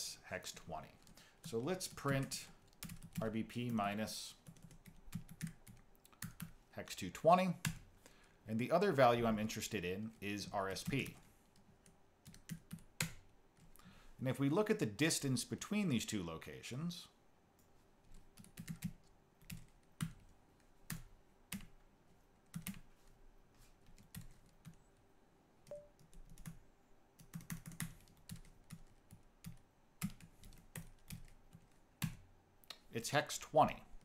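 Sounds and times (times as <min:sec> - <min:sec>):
faint typing on keyboard: 0:00.4 - 0:08.3, 0:10.0 - 0:13.9, 0:17.6 - 0:33.0.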